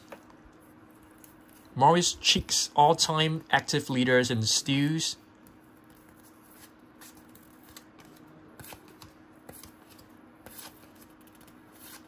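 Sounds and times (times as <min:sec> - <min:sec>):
faint steady hum: 0:00.0 - 0:12.0
trading cards clicking and sliding: 0:05.4 - 0:12.0.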